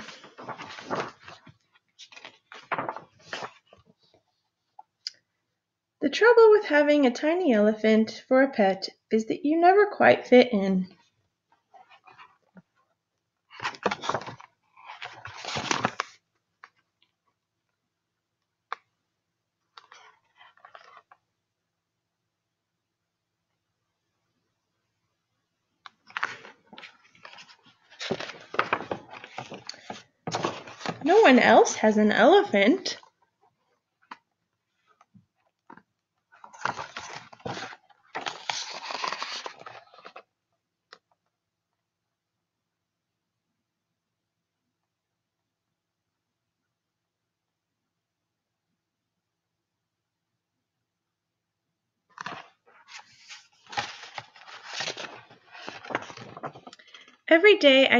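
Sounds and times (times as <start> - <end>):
book pages rustling: 0.0 - 5.0, 11.5 - 12.9, 13.5 - 17.3, 19.7 - 21.3, 25.8 - 31.6, 32.4 - 41.2, 52.1 - 57.2.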